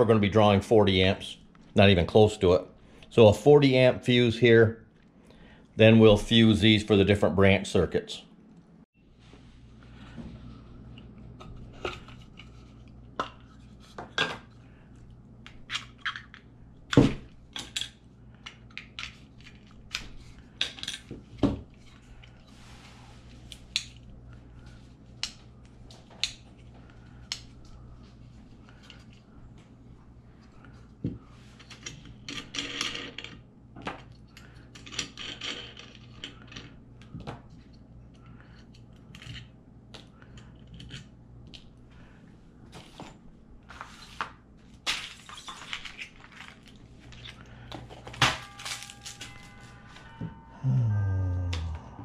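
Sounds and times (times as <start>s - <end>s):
small metal parts clinking: 48.1s - 49.8s.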